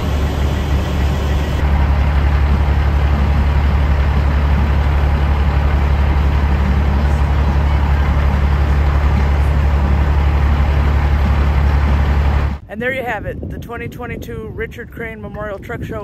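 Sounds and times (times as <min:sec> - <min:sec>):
large engine idling: 0:00.0 - 0:12.6.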